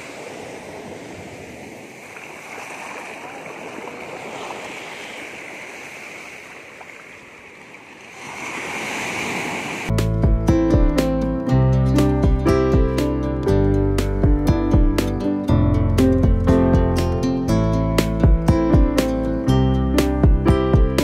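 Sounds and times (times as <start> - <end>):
waves breaking on sandy beach: 0.0 - 9.9.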